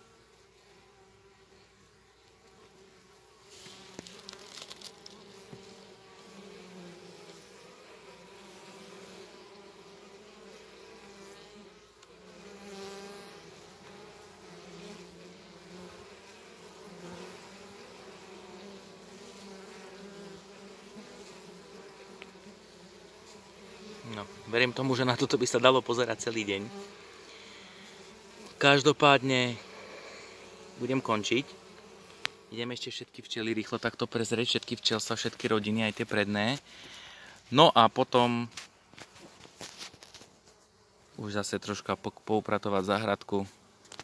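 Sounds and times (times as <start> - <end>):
bees buzzing: 0.0 - 32.8.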